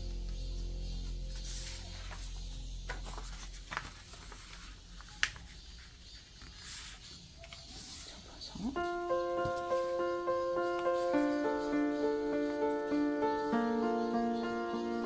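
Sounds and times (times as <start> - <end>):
paper rustling and crackling: 1.4 - 8.3.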